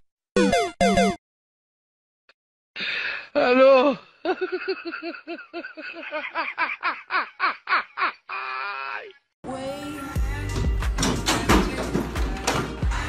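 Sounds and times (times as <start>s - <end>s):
person laughing: 3.4s - 9.1s.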